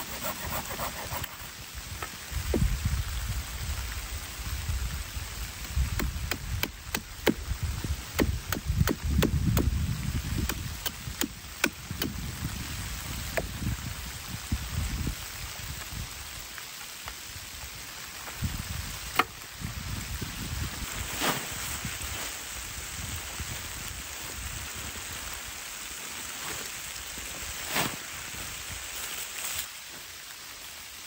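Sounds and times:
machete chopping wood: 5.9 - 7.4, 8.2 - 9.7, 10.4 - 12.2, 19.1 - 19.4.

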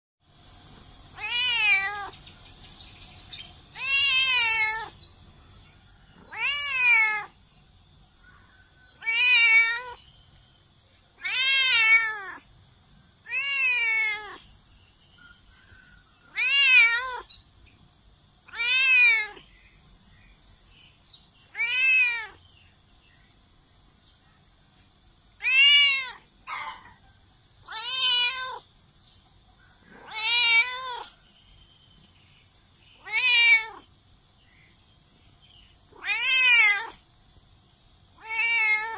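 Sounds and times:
cat meowing: 1.2 - 2.2, 3.7 - 5.0, 6.2 - 7.4, 9.0 - 10.0, 11.2 - 12.5, 13.2 - 14.5, 16.3 - 17.3, 18.5 - 19.5, 21.5 - 22.4, 25.4 - 26.6, 27.7 - 28.7, 29.9 - 31.2, 33.0 - 33.9, 35.9 - 37.0, 38.2 - 38.9.

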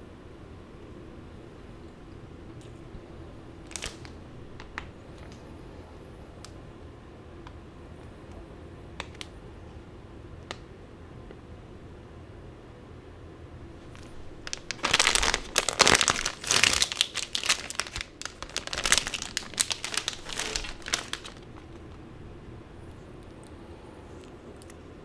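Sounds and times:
plastic snack bag crinkling: 3.6 - 5.4, 13.8 - 22.1.

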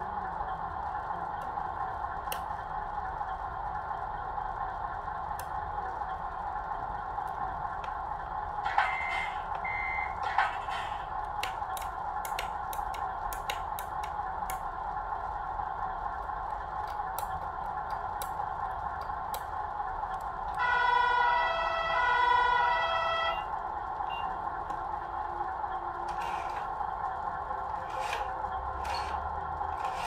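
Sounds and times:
simulated diesel engine idle: 0.0 - 30.0
truck horn: 20.6 - 23.5.

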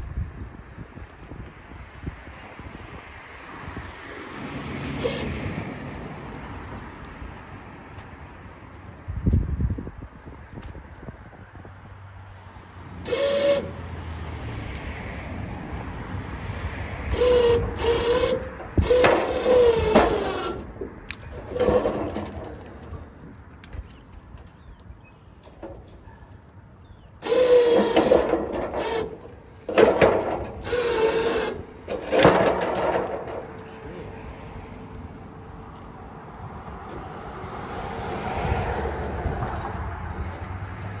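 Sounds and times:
wire cart scraping metal railing: 5.0 - 5.6, 13.1 - 13.8, 17.1 - 23.3, 27.2 - 34.3.

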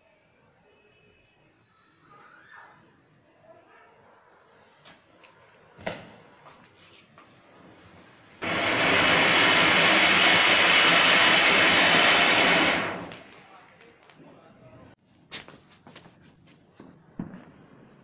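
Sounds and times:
firework fountain hissing: 6.2 - 13.9, 17.0 - 18.0.

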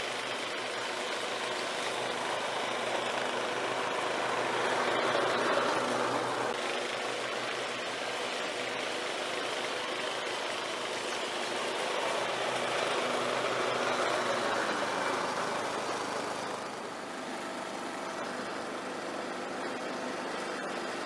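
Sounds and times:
lawn mower engine running: 0.0 - 21.0.

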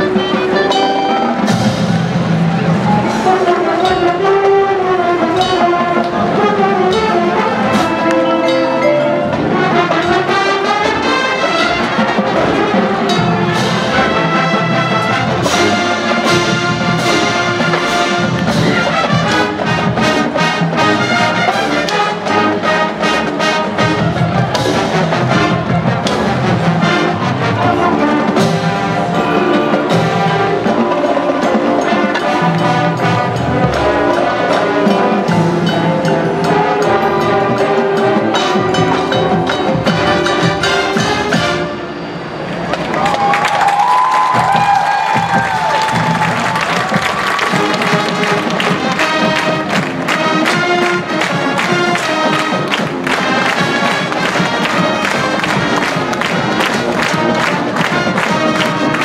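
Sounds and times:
brass sustaining chords: 0.0 - 42.8, 45.8 - 59.0
drumline percussion: 0.0 - 59.0.

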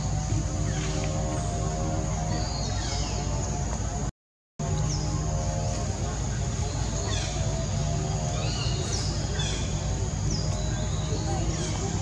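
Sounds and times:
steady low rumble: 0.0 - 12.0
small birds chirping: 4.7 - 12.0.

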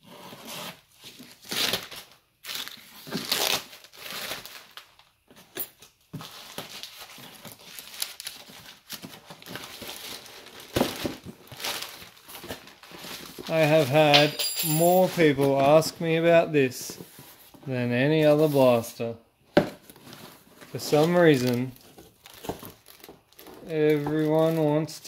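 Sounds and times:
plastic wrapping tearing and crinkling: 1.1 - 13.9, 19.9 - 25.0.

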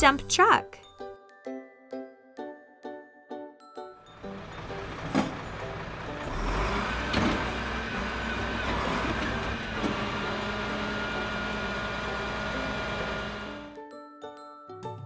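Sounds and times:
truck engine rumbling: 4.1 - 13.7.

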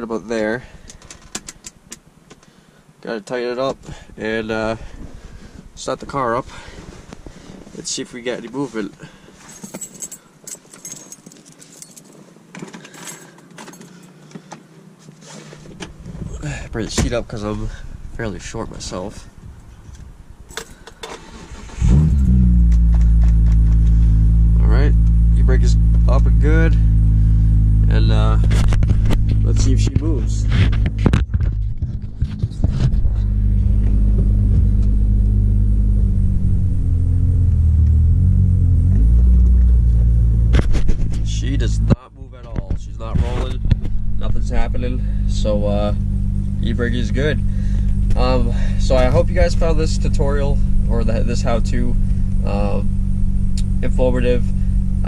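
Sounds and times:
car keys jangling: 9.4 - 14.3
car engine running: 12.0 - 55.0.

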